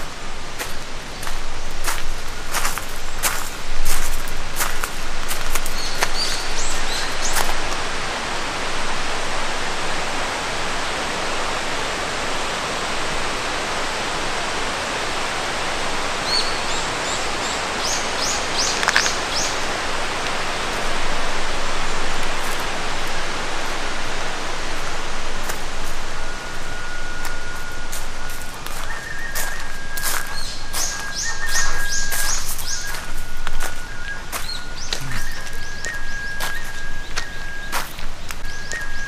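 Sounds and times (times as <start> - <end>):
stream flowing: 0.0 - 39.0
bird chirping: 5.5 - 7.5, 26.2 - 39.0.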